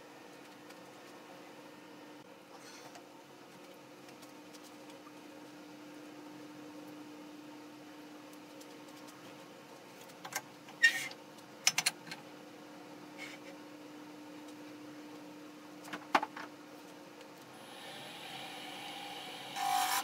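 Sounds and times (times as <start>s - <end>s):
steady low hum: 16.7s - 20.0s.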